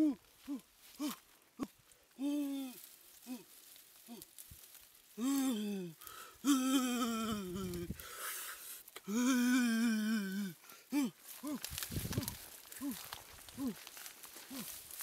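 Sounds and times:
man humming and moaning: 0.0s - 4.3s, 5.2s - 8.0s, 9.0s - 13.8s, 14.5s - 14.8s
rustle of dry grass: 0.0s - 15.0s.

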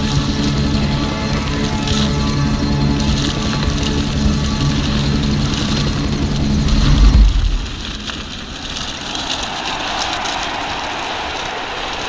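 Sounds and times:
bike tyres rolling on gravel: 0.0s - 12.0s
wind noise on microphone: 3.2s - 9.1s
music with low bass: 6.2s - 7.9s.

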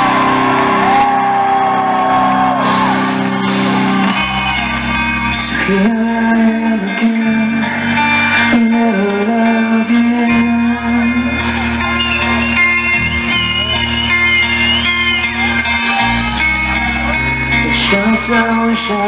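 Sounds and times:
rock band playing live: 0.0s - 19.0s.

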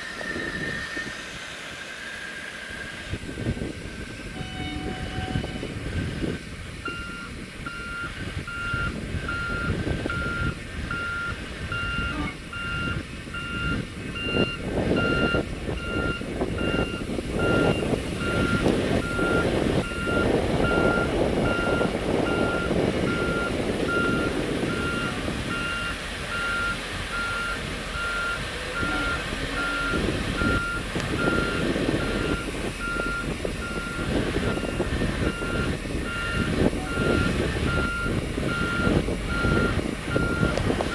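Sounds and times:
reversing alarm beeps: 6.9s - 40.6s
water jets hissing and splashing: 14.8s - 40.9s.

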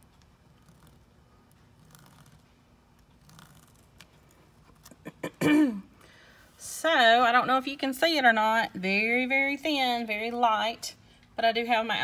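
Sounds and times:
ballpoint pen scratching: 0.4s - 1.1s, 1.8s - 2.4s, 3.2s - 4.1s.

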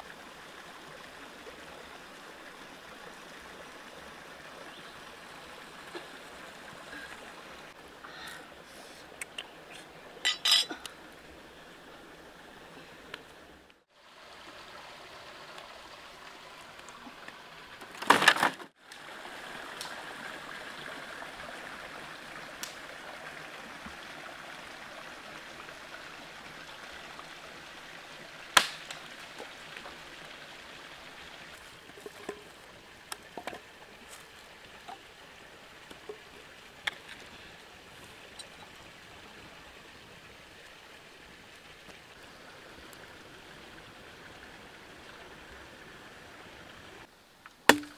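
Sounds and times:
stream running over rocks: 0.0s - 47.9s.

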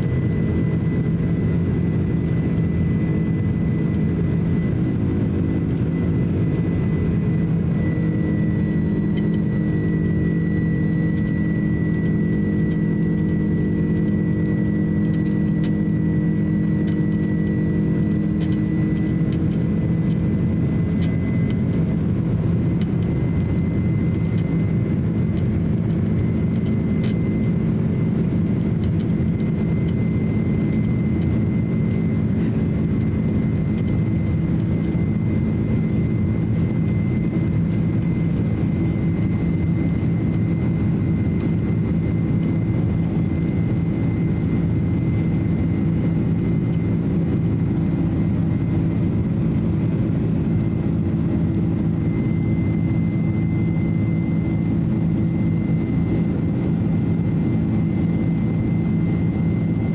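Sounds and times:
jet engine rumble and airflow: 0.0s - 59.9s.

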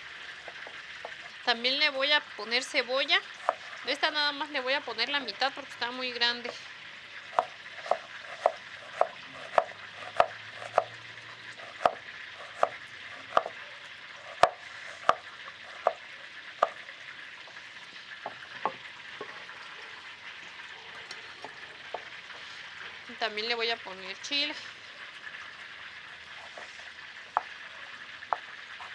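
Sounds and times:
fish sizzling in hot oil: 0.0s - 28.9s
knife chopping on wooden board: 3.4s - 3.6s, 7.4s - 10.9s, 11.7s - 13.5s, 14.3s - 16.0s.

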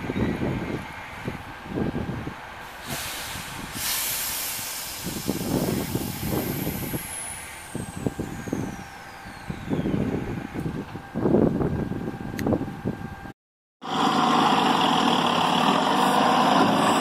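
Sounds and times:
low engine rumble: 0.0s - 17.0s
air brakes hissing: 2.6s - 10.6s.

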